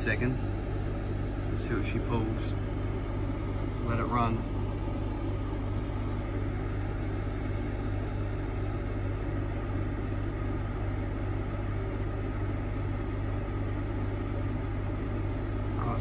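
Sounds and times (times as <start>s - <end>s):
air conditioner humming: 0.0s - 16.0s.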